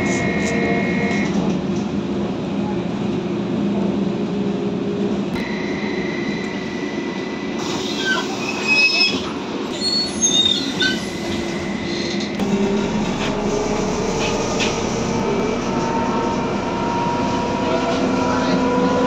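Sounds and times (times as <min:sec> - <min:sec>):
trolleybus electrical hum: 0:00.0 - 0:19.0
thin high whine: 0:05.4 - 0:08.7.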